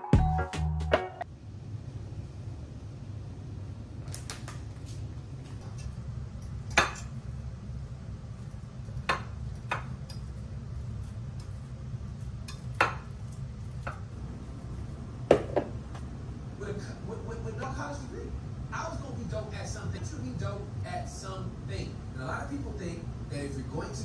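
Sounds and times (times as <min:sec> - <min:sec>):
low steady hum: 0:01.1 - 0:24.0
utensils clinking against bowls: 0:12.4 - 0:13.2.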